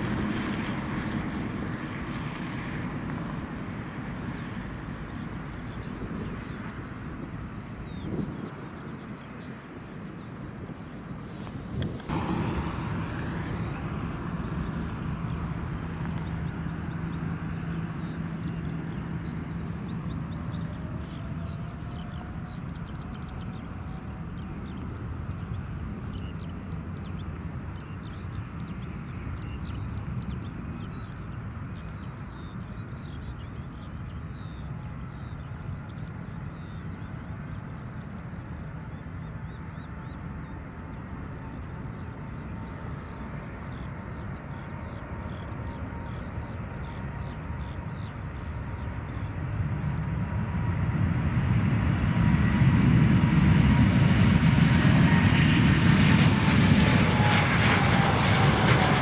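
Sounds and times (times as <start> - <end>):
distant jet engines rumbling: 0.0 - 59.0
bird chirps: 13.0 - 51.6.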